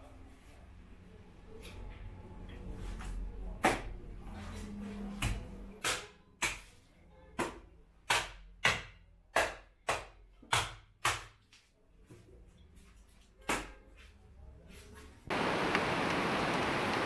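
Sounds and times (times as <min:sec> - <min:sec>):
cleaver chopping on wooden block: 0:07.4 - 0:11.4.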